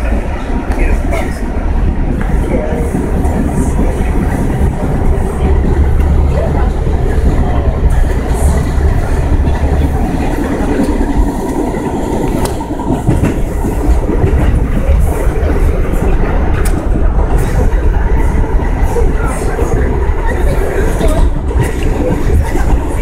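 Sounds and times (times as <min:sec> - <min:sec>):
subway car rumbling: 0:00.0 - 0:23.0
wheels clacking over rails: 0:00.0 - 0:23.0.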